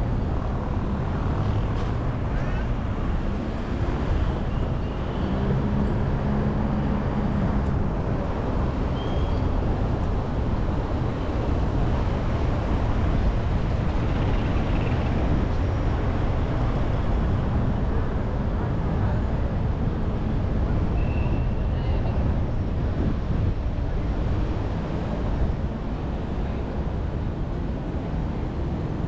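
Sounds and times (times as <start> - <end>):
car engine and tyres on road: 0.0 - 29.0
city traffic rumble: 0.0 - 29.0.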